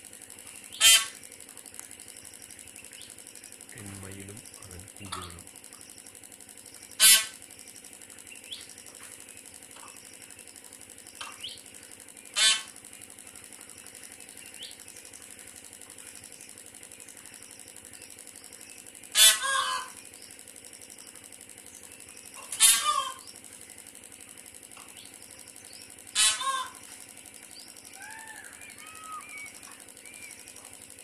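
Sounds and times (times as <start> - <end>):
peahen calling: 0.6 - 1.2, 7.0 - 7.4, 12.3 - 12.7, 19.2 - 20.0, 22.3 - 23.4, 26.2 - 26.9, 27.6 - 30.6.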